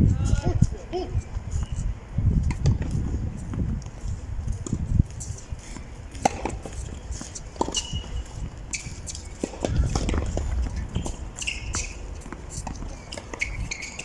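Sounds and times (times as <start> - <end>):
wind rumble on microphone: 0.0 - 13.9
footsteps on clay court: 0.1 - 14.0
tennis ball bouncing on clay: 5.7 - 8.1, 8.7 - 14.0.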